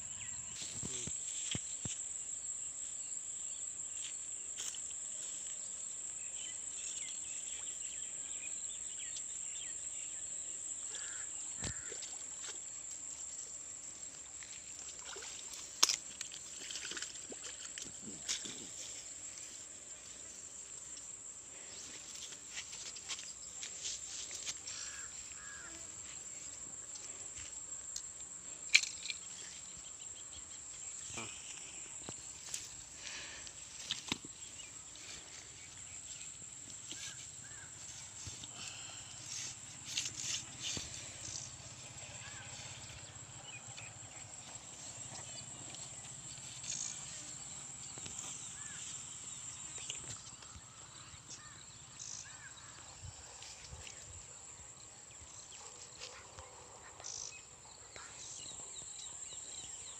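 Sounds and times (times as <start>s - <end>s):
insect drone: 0.0s - 59.9s
rustles and clicks handling fish: 14.5s - 20.2s, 31.3s - 41.4s.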